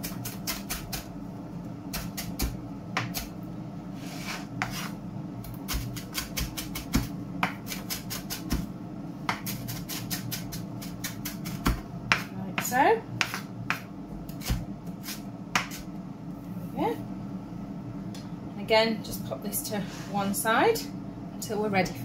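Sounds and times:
steady low hum: 0:00.0 - 0:22.0
knife chopping on wooden board: 0:02.0 - 0:03.3, 0:05.7 - 0:08.7, 0:09.3 - 0:13.8, 0:14.4 - 0:15.8.

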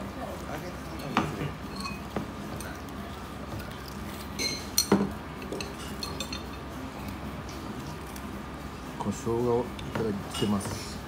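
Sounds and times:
restaurant background noise: 0:00.0 - 0:11.0
tableware clinking: 0:00.9 - 0:02.9, 0:03.5 - 0:06.8, 0:09.8 - 0:10.9.

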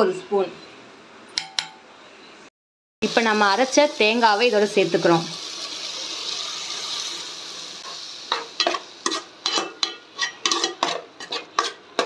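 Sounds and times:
paste sizzling in oil: 0:03.0 - 0:12.0
metal spoon scraping pot: 0:08.6 - 0:12.0.

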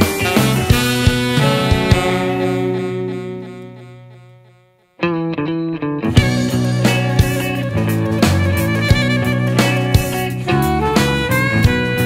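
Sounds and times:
steady drum beat: 0:00.0 - 0:03.0, 0:06.2 - 0:12.0
sustained synth notes: 0:00.2 - 0:04.9, 0:06.2 - 0:10.8.

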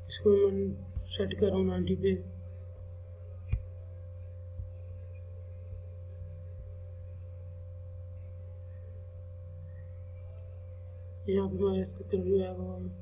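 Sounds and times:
electrical hum: 0:00.0 - 0:13.0
faint high tone: 0:08.1 - 0:13.0.

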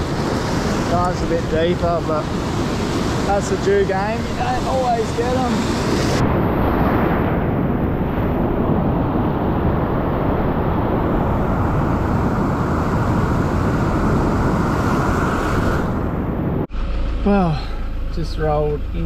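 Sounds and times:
ocean surf breaking on rocks: 0:00.0 - 0:06.2
wind buffeting microphone: 0:00.0 - 0:16.7.

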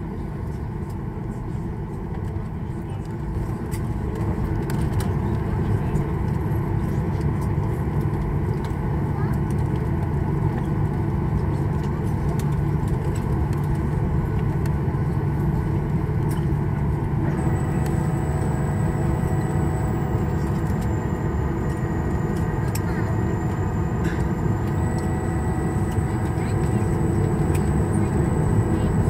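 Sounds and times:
jet engine low rumble: 0:00.0 - 0:29.0
thin high whine: 0:17.3 - 0:29.0.

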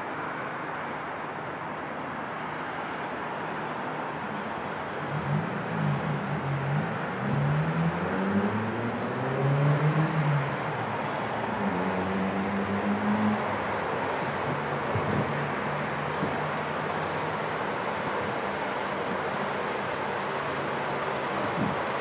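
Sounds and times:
distant city traffic: 0:00.0 - 0:22.0
vehicle engine accelerating: 0:05.0 - 0:17.5.

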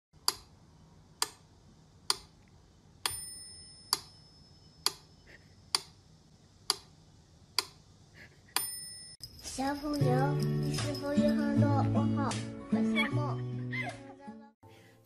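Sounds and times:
bell-like ding: 0:03.1 - 0:04.8, 0:08.6 - 0:11.6.

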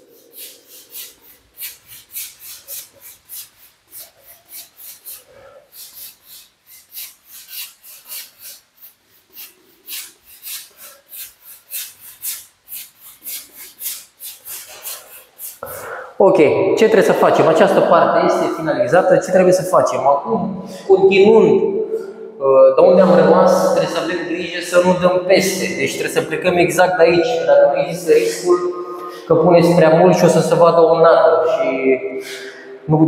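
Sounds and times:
paint brush scrubbing a wall: 0:00.0 - 0:16.1.

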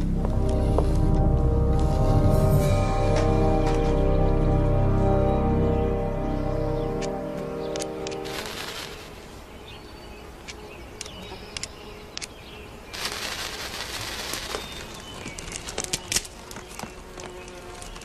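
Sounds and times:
birds chirping: 0:00.0 - 0:18.0
kindling snapping and crackling: 0:06.9 - 0:09.2, 0:10.4 - 0:18.0
fire hissing: 0:08.2 - 0:09.2, 0:12.9 - 0:16.2.

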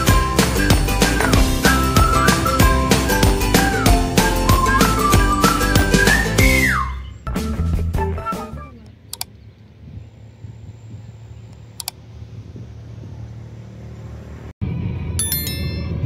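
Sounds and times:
notification bell jingle: 0:15.2 - 0:16.0.

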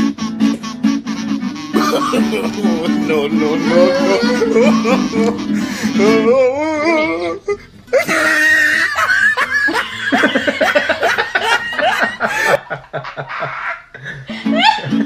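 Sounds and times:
people laughing hard: 0:01.8 - 0:06.3, 0:07.9 - 0:15.0
wavering voice: 0:01.8 - 0:08.4.

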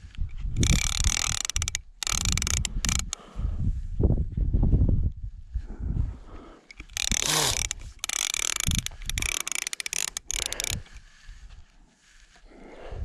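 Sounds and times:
fishing reel ratcheting whir: 0:00.5 - 0:03.2, 0:06.7 - 0:11.0.

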